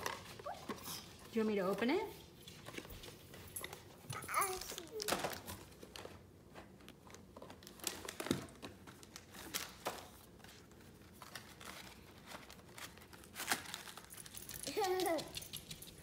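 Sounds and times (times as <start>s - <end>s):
plastic packaging crinkling: 3.6s - 15.9s.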